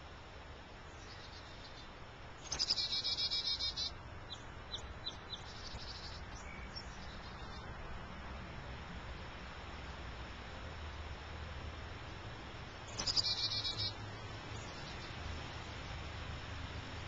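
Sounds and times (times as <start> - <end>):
finch chirps: 0.9 - 7.7, 12.9 - 15.2.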